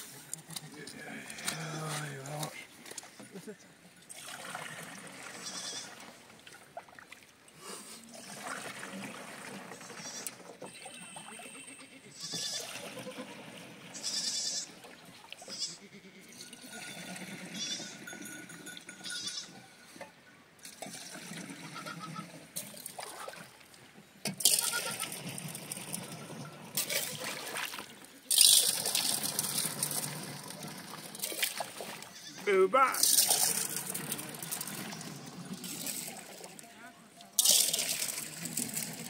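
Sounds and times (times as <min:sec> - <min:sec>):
goats bleating: 0:05.4 - 0:05.9, 0:11.1 - 0:14.7, 0:15.4 - 0:16.4, 0:17.5 - 0:18.0, 0:21.6 - 0:22.3, 0:24.5 - 0:25.2, 0:32.1 - 0:33.0.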